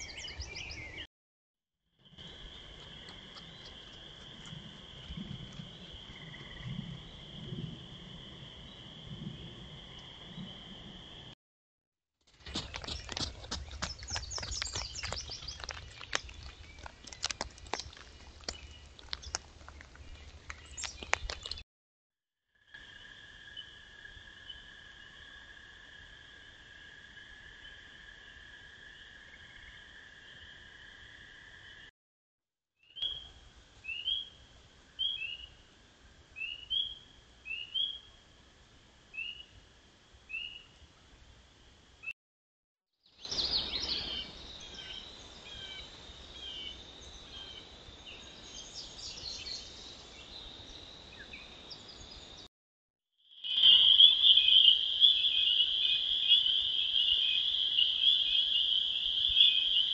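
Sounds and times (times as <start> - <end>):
hooves clicking in leaf litter: 12.3 - 21.6
frogs peeping: 12.5 - 21.6, 53.3 - 59.9.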